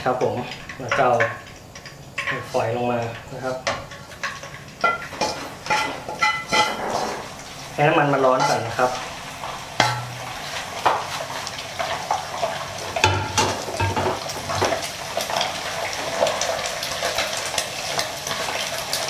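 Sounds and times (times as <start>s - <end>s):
meat sizzling in hot oil: 0.0s - 19.0s
wooden spatula knocking pan: 9.8s - 11.1s.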